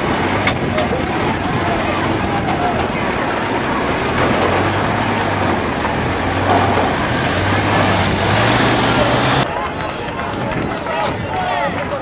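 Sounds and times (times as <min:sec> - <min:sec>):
vehicle engine running: 0:00.0 - 0:09.5.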